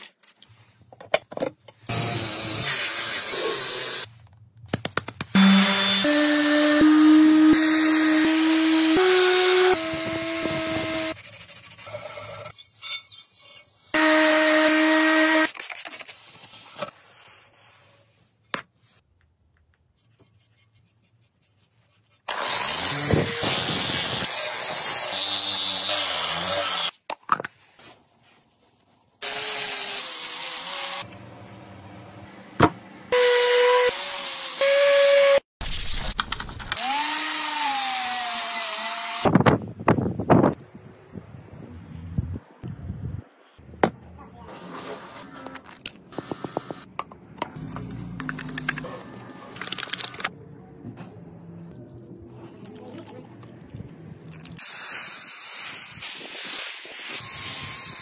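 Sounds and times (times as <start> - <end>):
orbital sander whine: 5.4 - 11.1.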